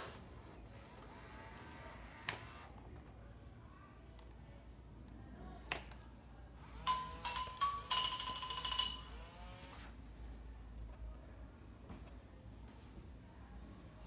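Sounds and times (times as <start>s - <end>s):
toy electronic jingle: 6.8s - 9.4s.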